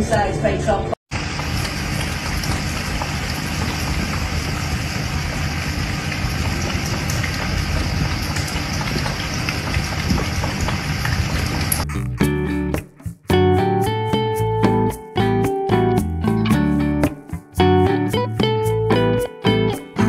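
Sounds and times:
rush of splashing water: 1.2s - 11.8s.

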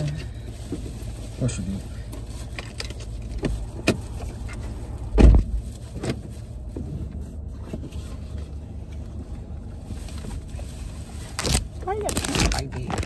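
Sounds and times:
low hum inside car: 0.0s - 13.0s
heavy dull thump: 5.1s - 5.6s.

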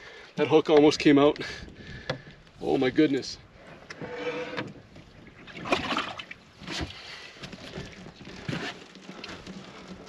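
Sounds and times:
water splashing: 4.9s - 9.3s.

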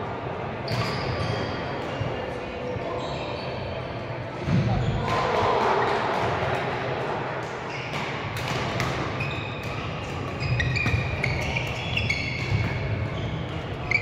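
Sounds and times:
shoes squeaking on floor: 0.7s - 1.8s, 2.9s - 3.8s, 9.1s - 14.0s
racket hitting shuttlecock: 7.9s - 11.8s.

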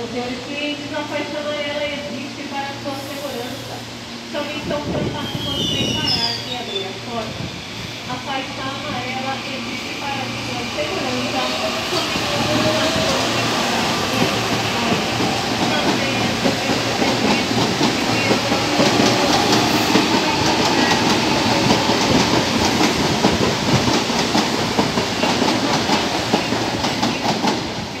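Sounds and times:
electric train running: 8.6s - 27.8s.

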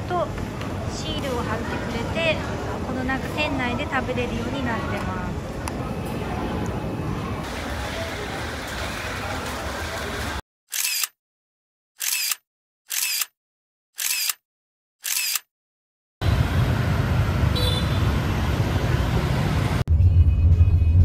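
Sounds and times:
busy street traffic: 0.0s - 11.1s, 16.2s - 21.0s
camera shutter clicks: 10.7s - 11.2s, 12.0s - 13.4s, 14.0s - 14.4s, 15.0s - 15.5s
motorbikes passing: 16.2s - 19.8s.

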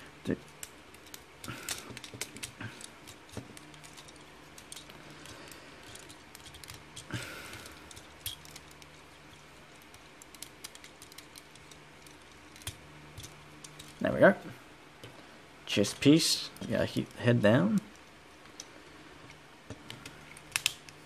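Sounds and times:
faint steady hum: 0.0s - 21.0s
plastic toy parts clicking: 0.4s - 14.0s, 19.8s - 21.0s.

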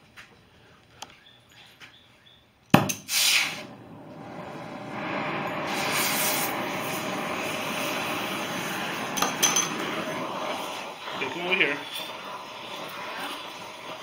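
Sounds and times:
torch ignition pop: 2.7s - 12.2s
gas torch hissing: 2.8s - 14.0s.

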